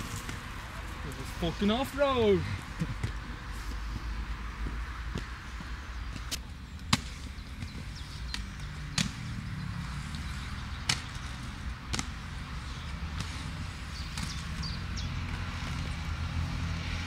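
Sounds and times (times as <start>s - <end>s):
skates clacking on concrete: 10.0s - 14.6s.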